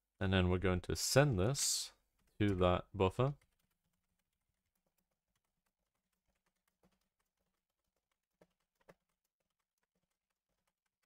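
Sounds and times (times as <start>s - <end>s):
typing on computer keyboard: 3.2s - 11.0s.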